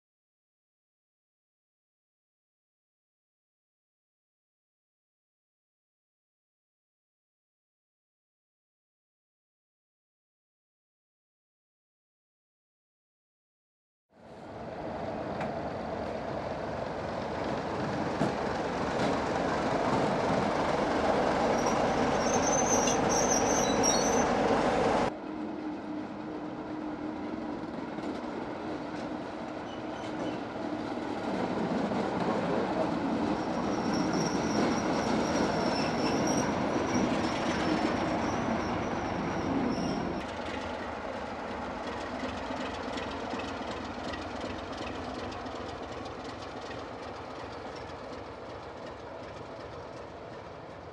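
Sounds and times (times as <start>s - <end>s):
diesel locomotive engines running: 14.2s - 50.9s
high wheel squeals: 21.4s - 25.1s, 29.6s - 30.5s, 33.3s - 40.3s.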